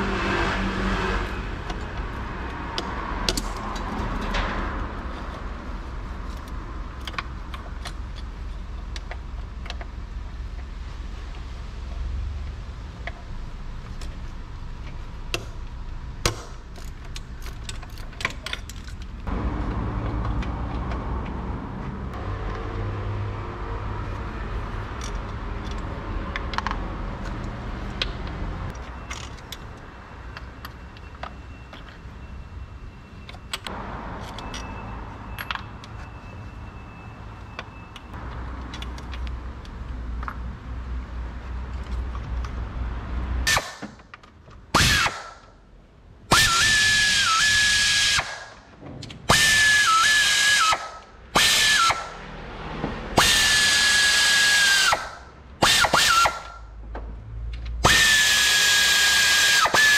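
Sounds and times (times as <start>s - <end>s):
tools and metal parts clinking: 1.6s - 10.0s, 16.3s - 19.3s, 24.8s - 32.2s, 33.1s - 36.7s, 37.4s - 40.4s, 41.6s - 42.6s.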